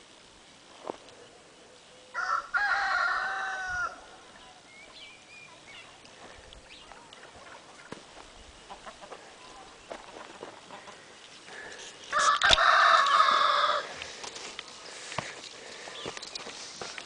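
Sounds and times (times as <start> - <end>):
rooster crowing: 2.1 - 4.1, 12.1 - 13.9
faint small birds chirping: 3.7 - 17.0.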